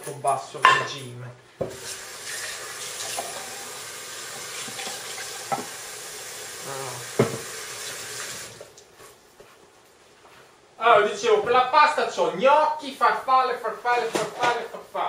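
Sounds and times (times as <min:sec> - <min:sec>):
clams sizzling in frying pan: 0:01.8 - 0:08.6.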